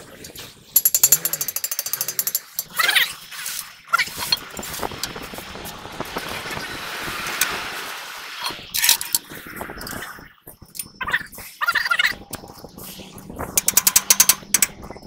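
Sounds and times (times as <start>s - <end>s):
rushing noise: 4.0s - 10.3s.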